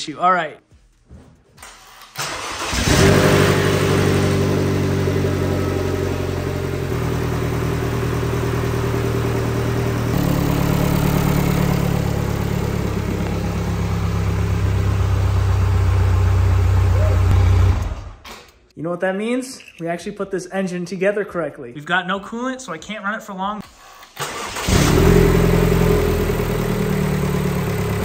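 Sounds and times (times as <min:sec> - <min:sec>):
car engine idling: 0:02.4 - 0:18.0, 0:24.7 - 0:28.0.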